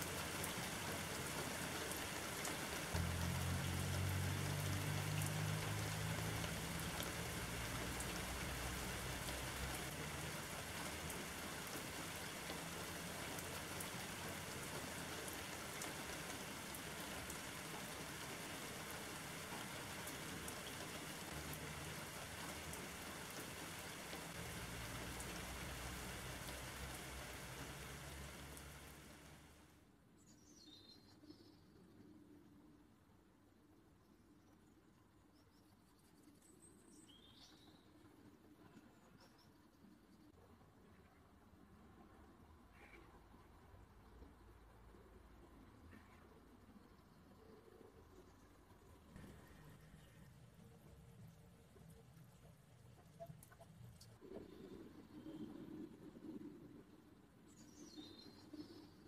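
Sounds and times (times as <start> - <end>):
rain drops pattering: 0.0 - 29.8, 42.8 - 59.0.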